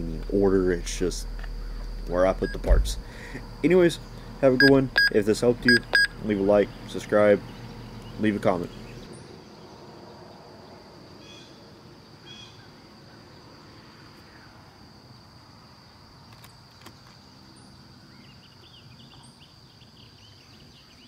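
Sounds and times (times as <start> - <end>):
high insect drone: 0.0 - 21.0
bird chirps: 4.0 - 9.6.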